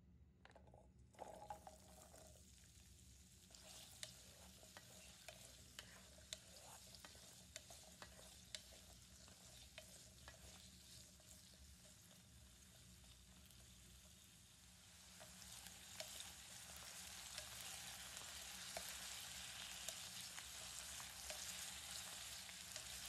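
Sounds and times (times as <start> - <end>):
food sizzling in a pan: 1.2 - 23.0
utensil scraping a pan: 3.5 - 12.0.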